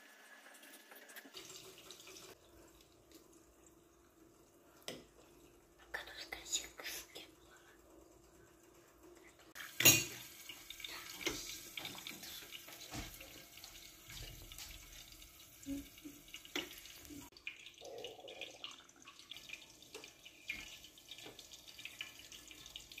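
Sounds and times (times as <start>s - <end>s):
running water hiss: 5.8s - 7.8s, 9.5s - 18.4s.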